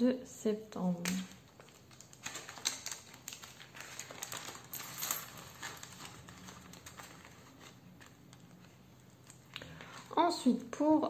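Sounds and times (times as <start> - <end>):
plastic envelope crinkling: 1.0 - 10.2
coins clicking: 4.3 - 6.6.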